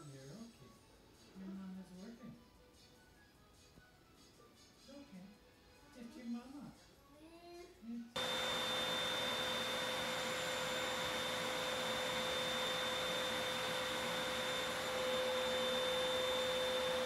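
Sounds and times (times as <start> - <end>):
vacuum cleaner running: 8.2 - 17.0.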